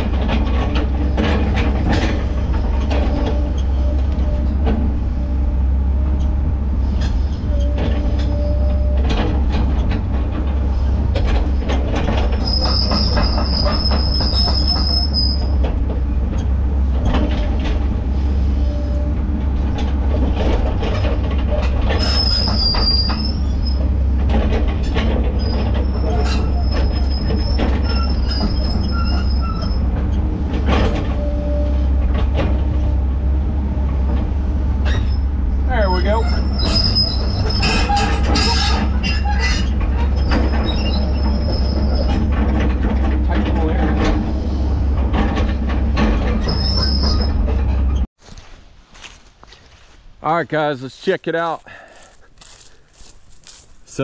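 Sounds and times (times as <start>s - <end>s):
metal clanks and knocks: 0.0s - 48.1s
skid steer engine running: 0.0s - 48.1s
high metallic squeal: 1.0s - 9.4s, 11.5s - 15.7s, 16.3s - 19.6s, 20.8s - 24.2s, 24.8s - 33.0s, 34.8s - 42.7s, 44.1s - 48.1s.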